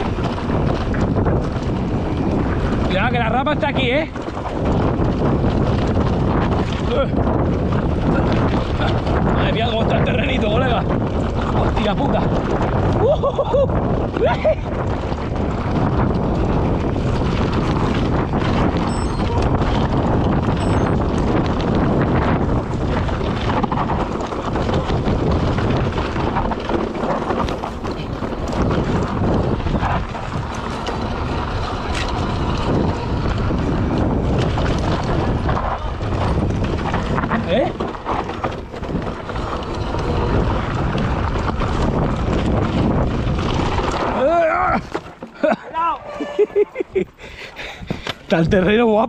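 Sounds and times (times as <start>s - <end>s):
bike rattling: 0.0s - 49.0s
bike tyres crunching over stones: 0.0s - 49.0s
wind rumble on microphone: 0.0s - 49.0s.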